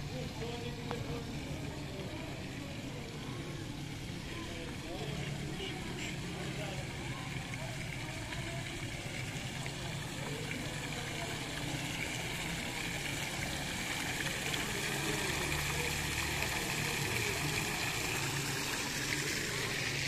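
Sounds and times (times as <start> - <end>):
fountain water splashing: 0.0 - 20.0.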